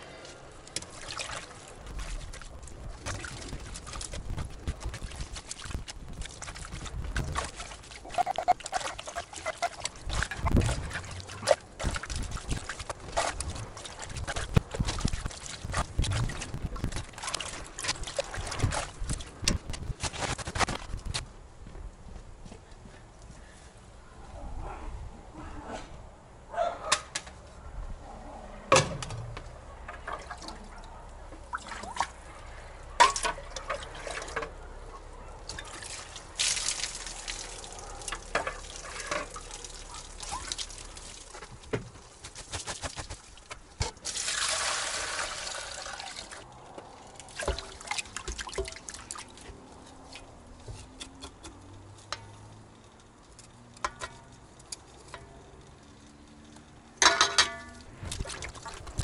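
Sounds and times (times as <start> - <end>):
water splashing and trickling: 0.0 - 21.2, 29.7 - 59.0
water pouring into metal bowl: 44.0 - 46.4.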